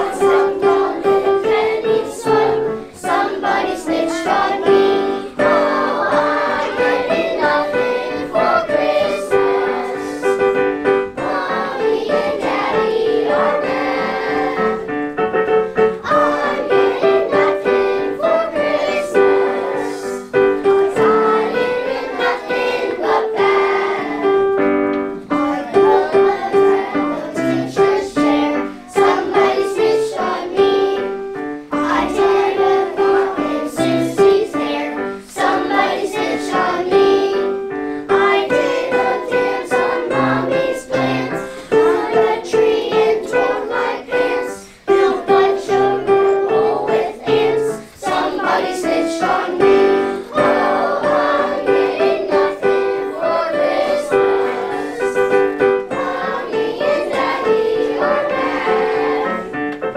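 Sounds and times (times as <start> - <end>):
children singing: 0.0 - 59.8
piano: 0.0 - 59.9.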